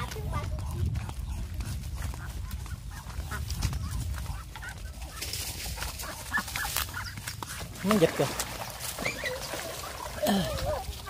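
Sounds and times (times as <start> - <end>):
footsteps on dirt path: 0.0 - 11.0
fowl clucking: 2.0 - 8.0.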